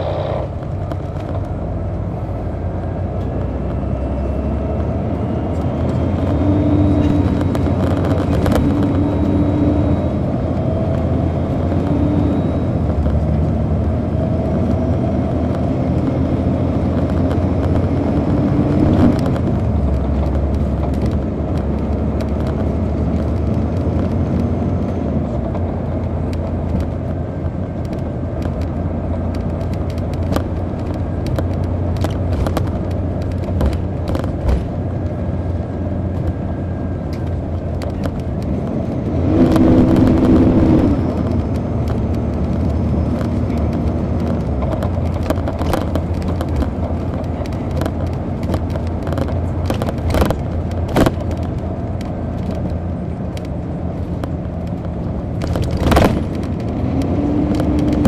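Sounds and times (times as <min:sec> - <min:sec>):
bus diesel engine drone: 0:00.0 - 0:58.0
light clicks and rattles: 0:40.8 - 0:58.0.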